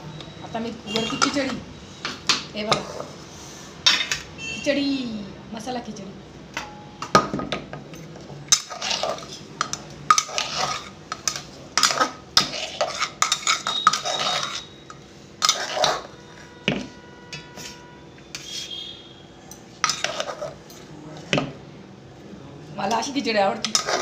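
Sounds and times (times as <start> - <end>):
metal ladle scraping in a pot: 8.5 - 9.5, 10.1 - 16.6, 17.4 - 19.1, 19.8 - 20.6, 23.6 - 24.0.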